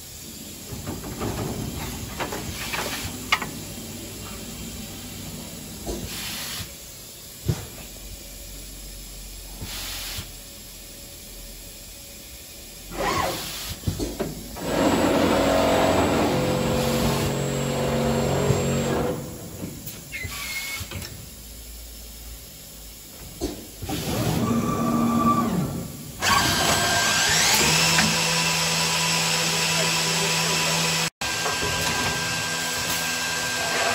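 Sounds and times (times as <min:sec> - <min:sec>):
drilling units running: 0:00.0 - 0:09.6, 0:10.7 - 0:33.9
compressed air hisses: 0:00.0 - 0:14.6
drilling machine hum: 0:14.6 - 0:19.5, 0:24.6 - 0:33.9.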